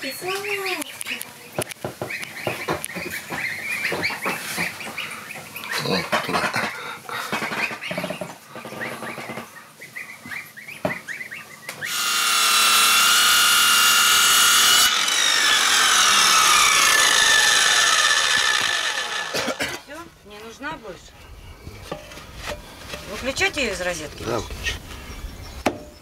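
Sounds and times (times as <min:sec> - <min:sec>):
chicks peeping: 0:00.4 - 0:11.9
circular saw cutting wood: 0:11.8 - 0:19.8.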